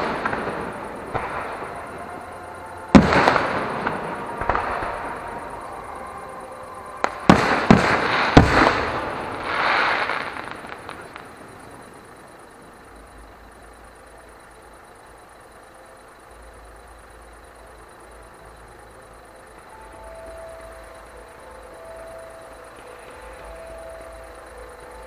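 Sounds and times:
firework bangs: 0:00.0 - 0:01.9, 0:02.9 - 0:05.9, 0:07.0 - 0:11.6
firework crackling: 0:00.0 - 0:14.0
faint steady hiss: 0:00.0 - 0:25.0.

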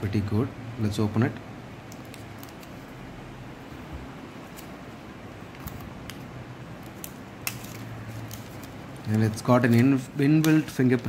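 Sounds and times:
steady room hiss: 0:00.0 - 0:11.0
plastic film rustling: 0:02.0 - 0:03.0, 0:05.5 - 0:11.0.

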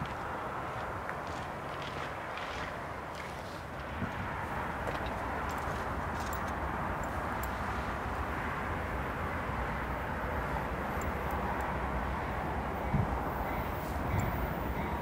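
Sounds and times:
train rumble and hiss: 0:05.4 - 0:15.0.

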